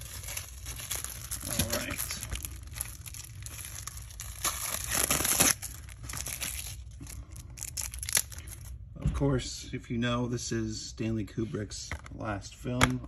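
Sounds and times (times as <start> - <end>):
plastic shrink wrap crinkling: 0.0 - 8.8.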